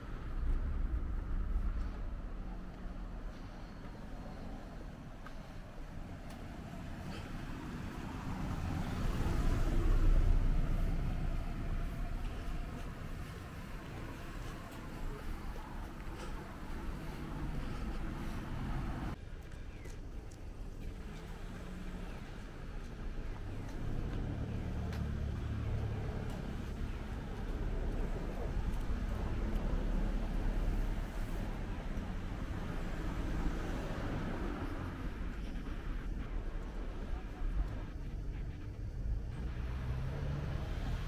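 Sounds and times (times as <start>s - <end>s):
low engine-like hum: 0.0s - 41.0s
car driving past: 21.0s - 41.0s.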